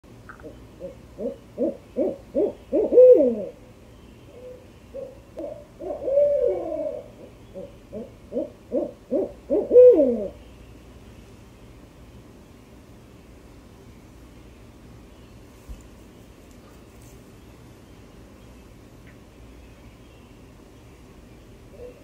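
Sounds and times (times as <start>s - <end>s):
owl hooting: 0.3s - 3.6s, 4.3s - 10.4s.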